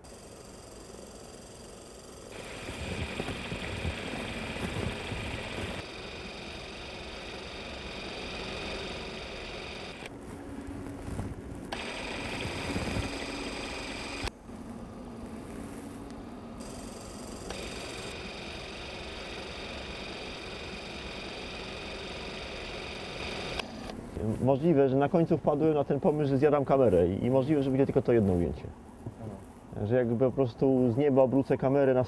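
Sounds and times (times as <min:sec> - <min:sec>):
film projector mechanism whirring: 0:00.0 - 0:10.1, 0:11.7 - 0:14.3, 0:16.6 - 0:24.0.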